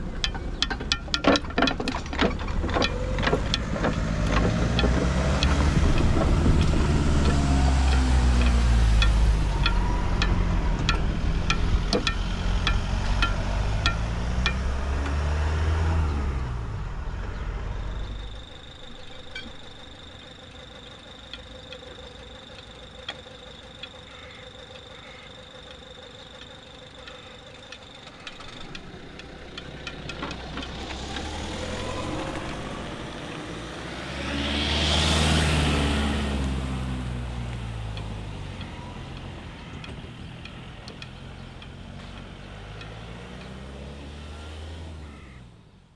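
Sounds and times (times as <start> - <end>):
car engine running close: 0.0 - 45.9
car passing: 2.2 - 23.7, 26.7 - 45.9
sharp regular ticks: 2.4 - 15.7, 17.9 - 34.2, 37.3 - 44.2.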